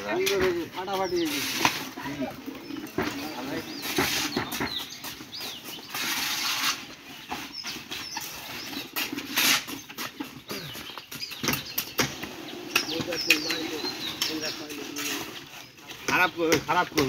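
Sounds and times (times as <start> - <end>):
bucket knocking and scraping: 0.0 - 17.0
wet concrete pouring: 1.2 - 2.3.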